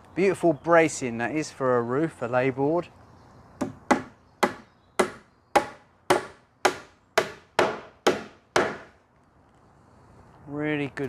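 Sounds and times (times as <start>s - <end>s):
hammer driving nail into wood: 3.6s - 9.0s.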